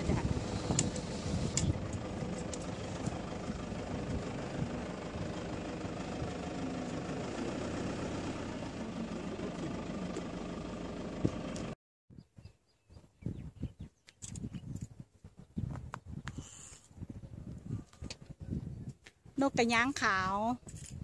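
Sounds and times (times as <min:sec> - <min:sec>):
heavy engine idling: 0:00.0 - 0:11.8.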